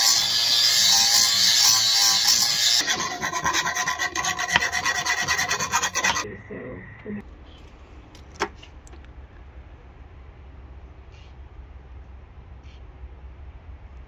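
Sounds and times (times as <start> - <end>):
angle grinder on metal pipe: 0.0 - 6.2
file rasping inside pipe: 0.0 - 6.2.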